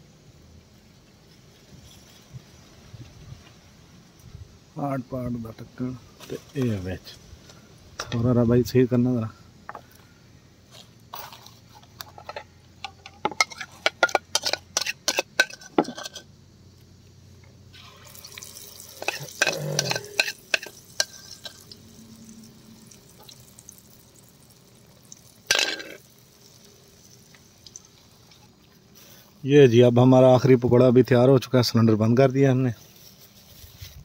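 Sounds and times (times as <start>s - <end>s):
metal utensils clinking on frying pan: 12.2s - 16.3s, 19.0s - 21.7s, 25.5s - 26.0s
batter frying in hot oil: 17.6s - 29.5s.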